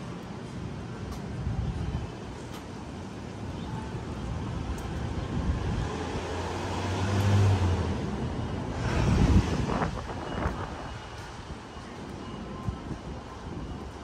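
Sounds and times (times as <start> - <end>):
vehicle engine hum passing: 5.0 - 11.5
loud vehicle passing: 5.6 - 10.8.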